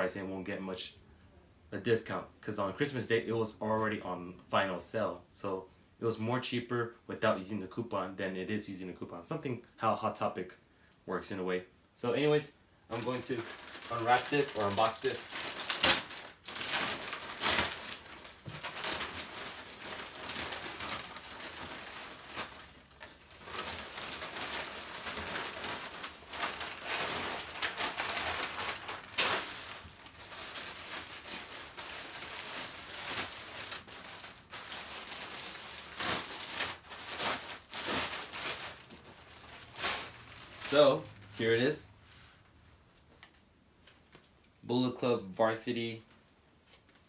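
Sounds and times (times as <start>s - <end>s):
plastic crackles: 12.9s - 41.7s
plastic packaging rustling: 12.9s - 44.4s.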